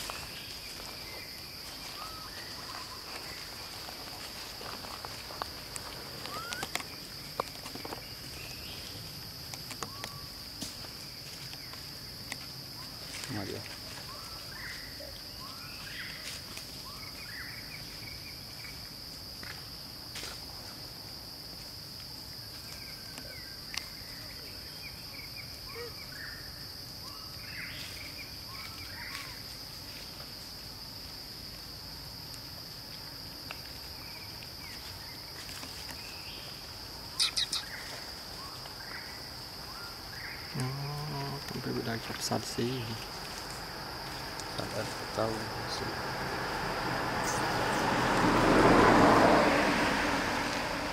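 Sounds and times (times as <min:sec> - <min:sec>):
short insect chirps: 0:00.0 - 0:20.5, 0:33.1 - 0:48.8
high-pitched insect drone: 0:37.1 - 0:49.2.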